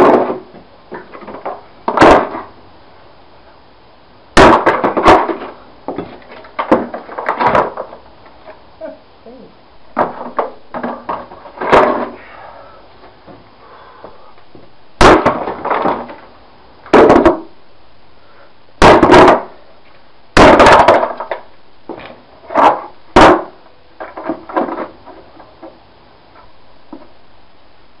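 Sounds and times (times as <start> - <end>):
axe striking hollow plastic: 0.0 - 2.5, 4.4 - 8.0, 10.0 - 12.1, 15.0 - 16.1, 16.9 - 17.5, 18.8 - 19.5, 20.4 - 21.4, 22.5 - 24.9
plastic clatter on concrete: 0.0 - 2.5, 4.5 - 8.6, 10.0 - 12.2, 15.2 - 16.2, 20.6 - 23.4, 24.0 - 25.8.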